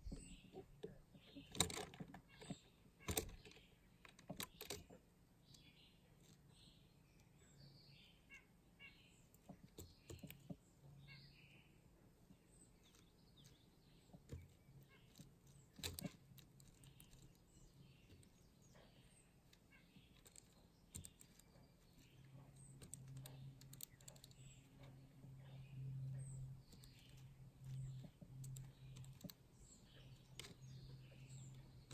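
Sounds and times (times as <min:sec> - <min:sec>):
faint bird chirps: 0:00.0 - 0:31.9
woodpecker tapping on wood: 0:09.4 - 0:10.6, 0:12.8 - 0:31.9.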